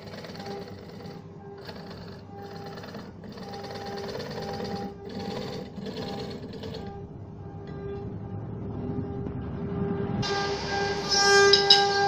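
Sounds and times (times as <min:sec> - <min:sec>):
chisel scraping spinning wood: 0:00.0 - 0:07.0
electric motor and belt hum: 0:00.0 - 0:08.0.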